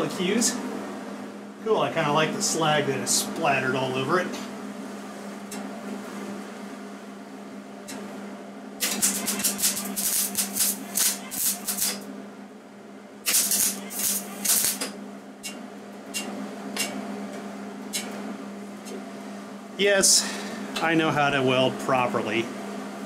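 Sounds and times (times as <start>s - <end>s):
steady low hum: 0.0s - 23.0s
welding arc crackling: 8.8s - 12.1s, 13.2s - 16.9s.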